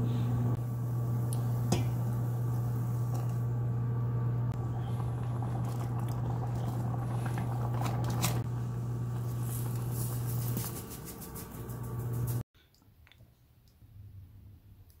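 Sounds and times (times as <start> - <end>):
low hum: 0.0 - 12.4
soup bubbling and crackling: 0.7 - 10.4.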